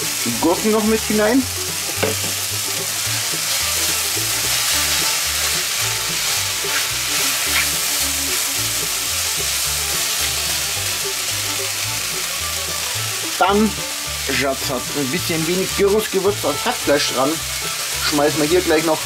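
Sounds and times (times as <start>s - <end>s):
vegetables sizzling in oil: 0.0s - 19.0s
spatula scraping a pan: 1.8s - 8.5s.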